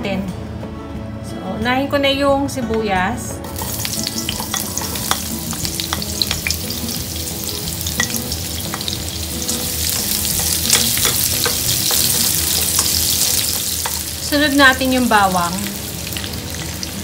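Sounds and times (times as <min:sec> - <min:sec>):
onion sizzling in oil: 0:03.4 - 0:17.0
spatula stirring in pan: 0:03.5 - 0:14.2.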